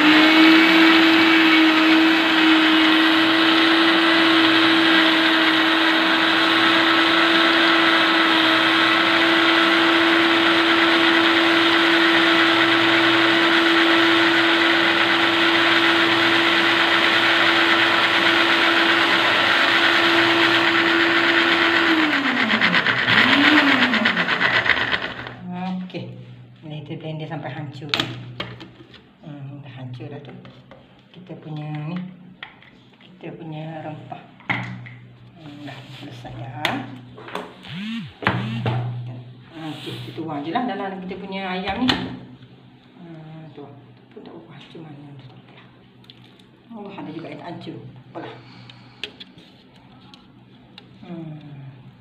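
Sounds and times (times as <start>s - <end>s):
blender motor grinding: 0.0s - 25.5s, 37.6s - 39.0s.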